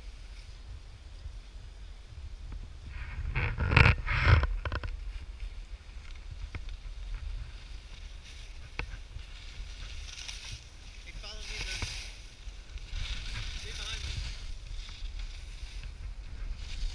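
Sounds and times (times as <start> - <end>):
wind rumbling on microphone: 0.0 - 16.9
skis scraping over snow: 6.8 - 16.9.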